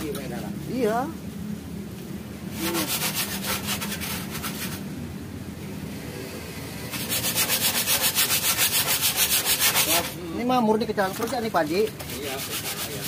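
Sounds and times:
sandpaper rubbing on metal: 0:02.5 - 0:04.9, 0:06.9 - 0:10.2, 0:11.0 - 0:13.0.

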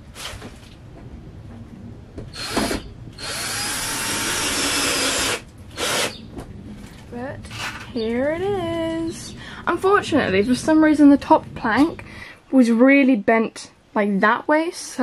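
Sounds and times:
cordless drill driving screw into wood: 0:02.3 - 0:06.2.

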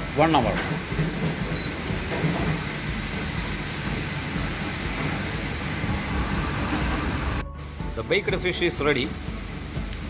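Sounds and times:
kitchen fan rushing: 0:00.0 - 0:10.0
low hum: 0:04.3 - 0:08.0.

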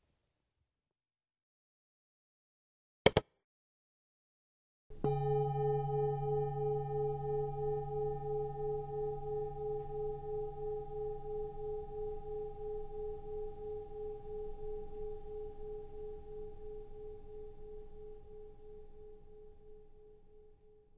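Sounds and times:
singing bowl ringing: 0:04.9 - 0:20.9.

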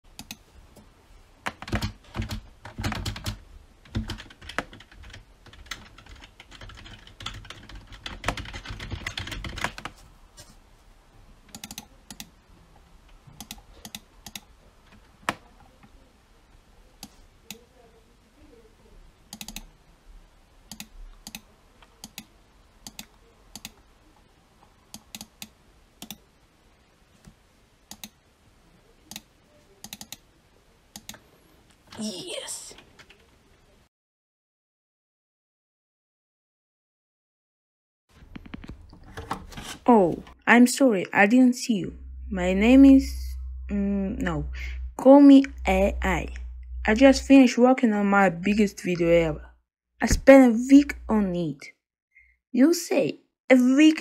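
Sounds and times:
typing on computer keyboard: 0:01.5 - 0:09.9, 0:11.5 - 0:12.3, 0:13.4 - 0:14.5, 0:19.3 - 0:19.7, 0:20.7 - 0:21.4, 0:22.0 - 0:23.8, 0:27.9 - 0:28.2, 0:29.8 - 0:30.2.

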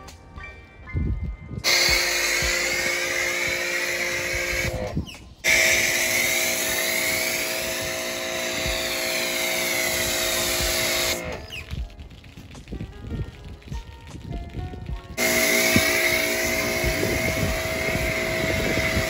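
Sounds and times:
spray hissing: 0:01.6 - 0:11.6, 0:15.2 - 0:19.0
pressure washer motor whine: 0:01.6 - 0:11.7, 0:15.2 - 0:19.0.

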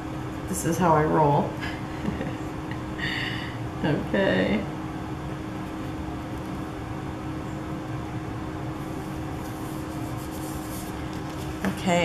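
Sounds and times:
low room hum: 0:00.0 - 0:12.0
paper rustling: 0:08.8 - 0:11.9.

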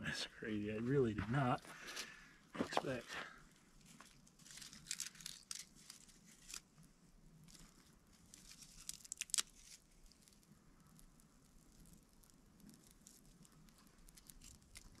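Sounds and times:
dry tinder tearing and rustling: 0:03.8 - 0:06.8, 0:07.4 - 0:10.5, 0:11.8 - 0:15.0.

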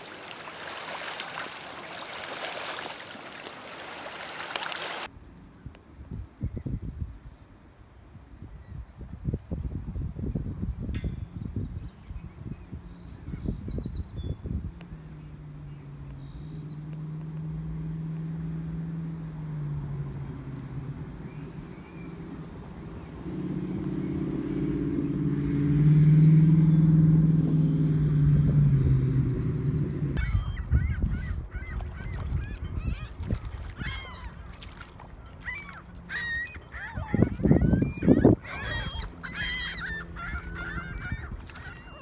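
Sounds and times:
waterbirds calling: 0:00.0 - 0:05.1, 0:11.3 - 0:42.0
passing engine hum: 0:12.7 - 0:42.0.

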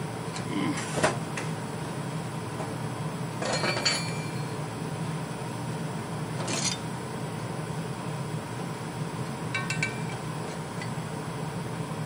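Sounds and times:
steady low hum: 0:00.0 - 0:12.0
steel pieces clinking and scraping: 0:06.4 - 0:06.8.

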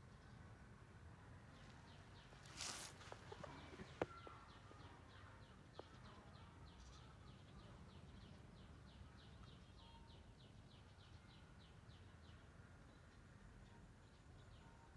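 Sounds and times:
bird chirping: 0:01.5 - 0:14.9
brief rustle: 0:02.5 - 0:04.0.

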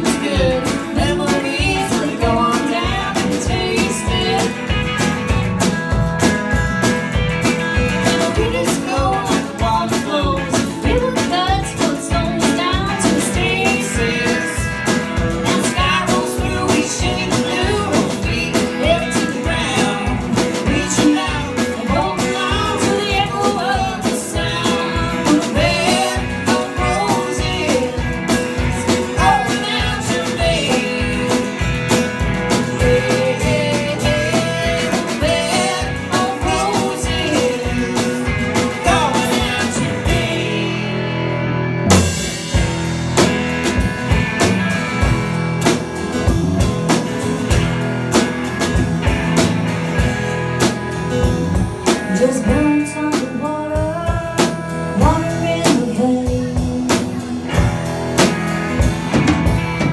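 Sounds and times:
woman singing: 0:00.0 - 0:04.9, 0:08.0 - 0:41.2, 0:51.9 - 0:57.7
live band playing: 0:00.0 - 0:59.9.

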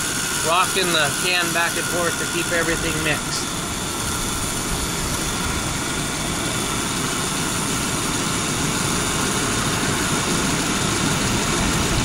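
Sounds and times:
air conditioning compressor running: 0:00.0 - 0:12.0.

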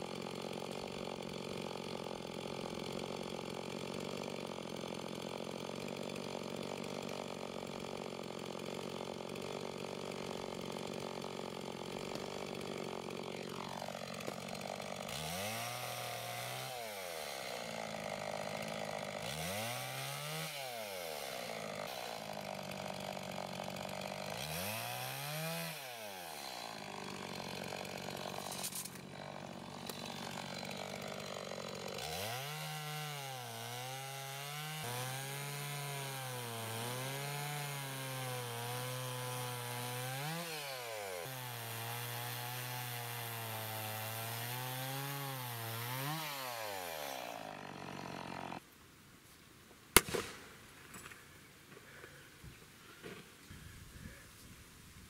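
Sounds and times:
chainsaw cutting a log: 0:00.0 - 0:48.7.

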